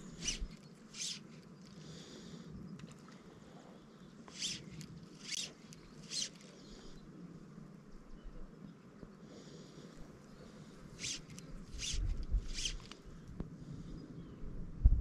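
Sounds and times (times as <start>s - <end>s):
fly line hissing through rod guides: 0.0s - 1.9s, 4.3s - 7.0s, 10.7s - 13.0s.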